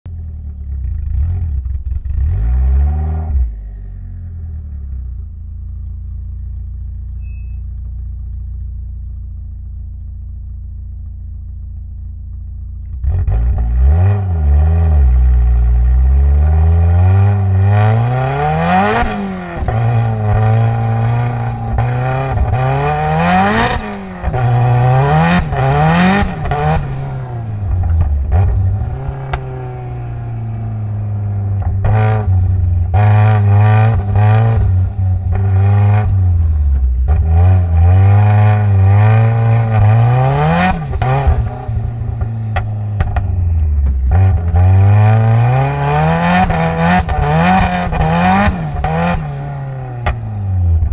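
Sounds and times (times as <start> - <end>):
car engine revving and accelerating: 0.7 - 5.1, 13.0 - 50.9
high turbo whine: 13.0 - 50.9.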